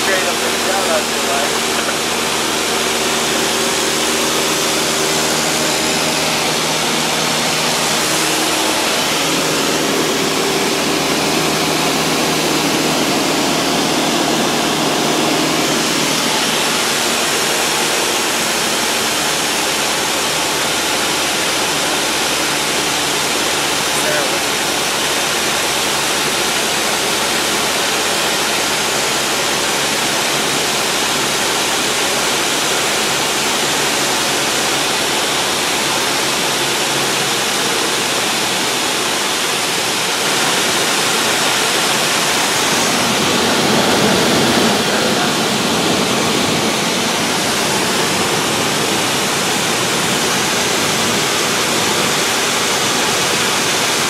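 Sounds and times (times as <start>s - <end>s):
rushing air: 0.0s - 24.2s, 38.5s - 54.0s
airplane engine and propeller drone: 0.0s - 54.0s.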